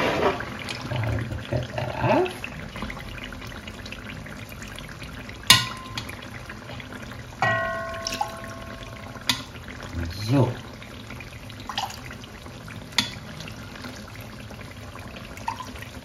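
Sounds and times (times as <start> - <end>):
liquid pouring and trickling: 0.0 - 16.0
utensil clinking against pot: 5.5 - 6.2, 7.4 - 9.6
ringing clang: 7.4 - 9.6.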